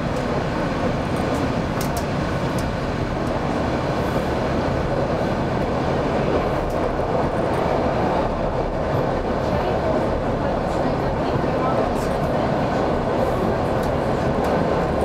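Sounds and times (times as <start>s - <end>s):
train wheels on rails: 0.0s - 15.0s.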